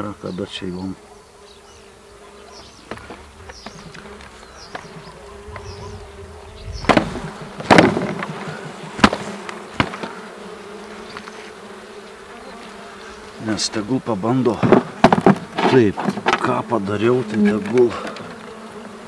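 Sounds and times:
bees humming: 0:00.0 - 0:19.0
sharp knocks and clacks: 0:06.8 - 0:10.1.

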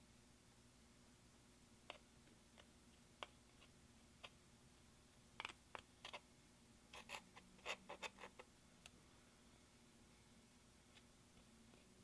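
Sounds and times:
metal spatula scraping eyeshadow: 0:06.9 - 0:08.5.

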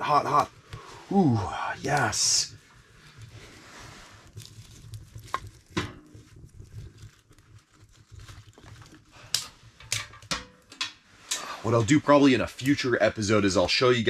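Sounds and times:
fire crackling and popping: 0:00.0 - 0:14.0
sticks knocking in stove: 0:09.3 - 0:11.0.

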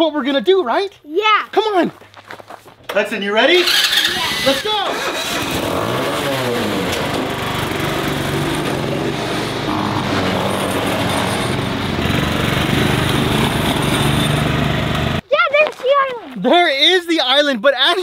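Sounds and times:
small tractor engines running: 0:03.5 - 0:15.2.

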